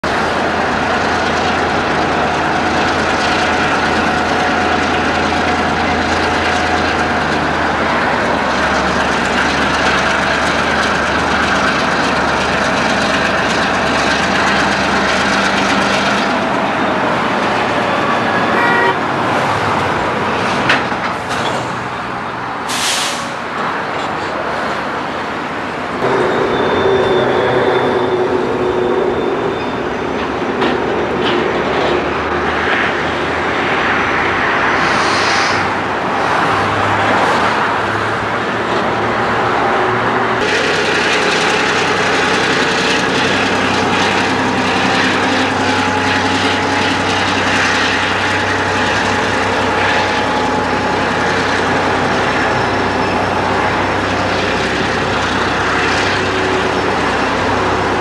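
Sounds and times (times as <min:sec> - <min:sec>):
diesel locomotive engine drone: 0:00.0 - 0:58.0
rail yard noise: 0:00.0 - 0:58.0
steady pitched tone: 0:26.0 - 0:31.2.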